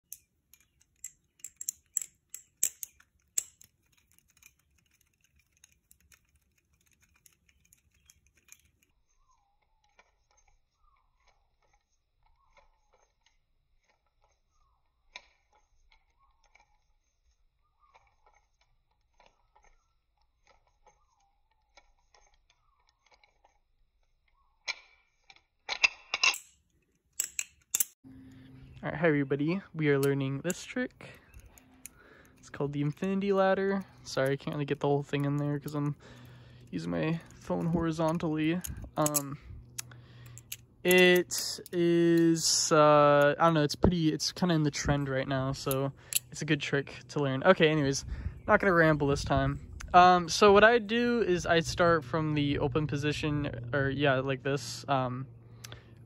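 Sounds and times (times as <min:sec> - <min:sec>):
butterfly knife clacking: 0:00.0 - 0:08.8.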